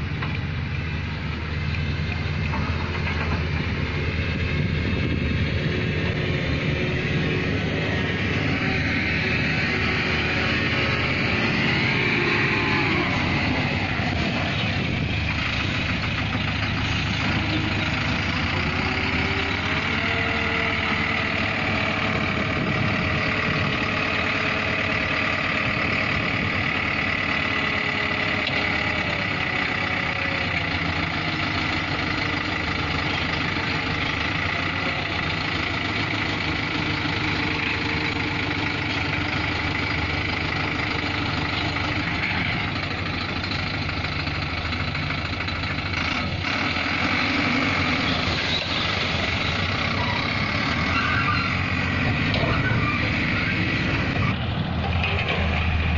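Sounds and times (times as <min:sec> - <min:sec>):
diesel engine running: 0:00.0 - 0:55.9.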